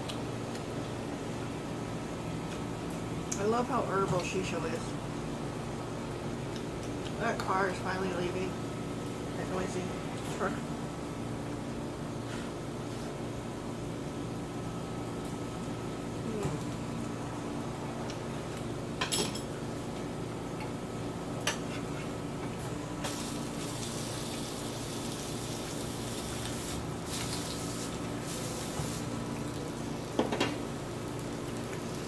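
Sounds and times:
steady low hum: 0.0 - 32.0
vegetables sizzling: 23.0 - 32.0.

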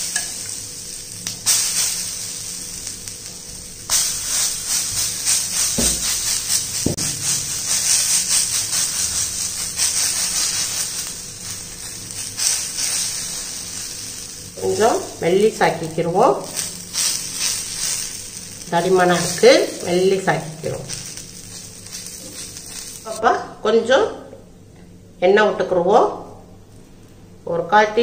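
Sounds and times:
batter sizzling on a hot pan: 0.0 - 23.2.

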